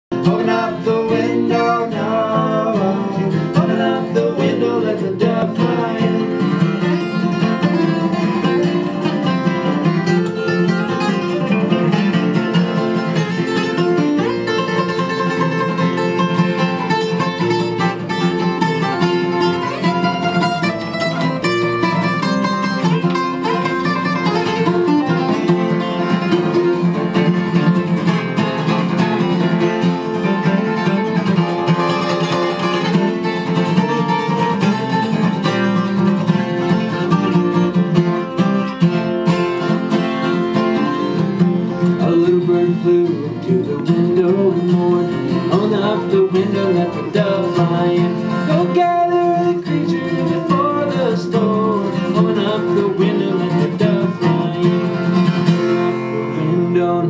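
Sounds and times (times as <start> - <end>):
man singing: 0.1 - 9.0, 29.2 - 33.3, 41.6 - 57.0
acoustic guitars playing: 0.1 - 57.0.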